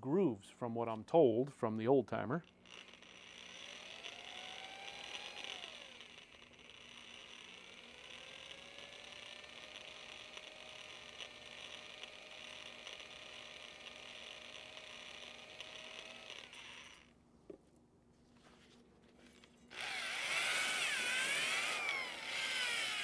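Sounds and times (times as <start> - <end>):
electric drill spinning hone: 2.4 - 17.2, 19.7 - 23.0.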